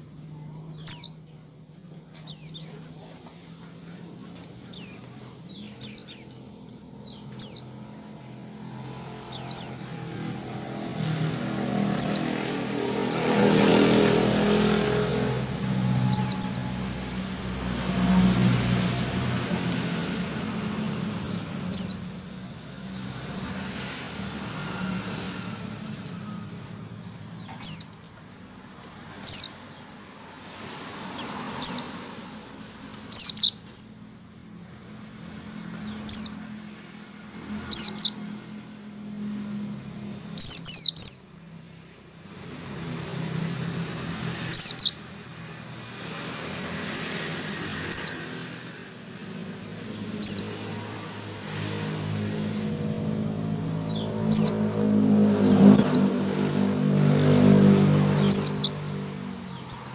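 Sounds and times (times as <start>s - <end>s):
bird giving high call notes: 15.9s - 16.7s.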